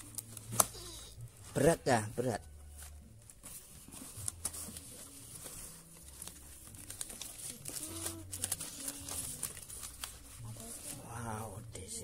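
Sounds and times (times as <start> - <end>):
cardboard rustling and crinkling: 0.0 - 11.4.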